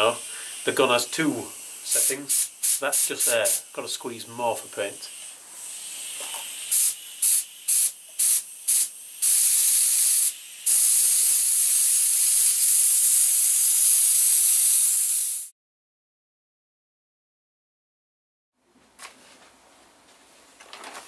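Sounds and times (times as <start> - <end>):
compressed air hissing from spray gun: 0.0 - 3.8, 4.5 - 15.5.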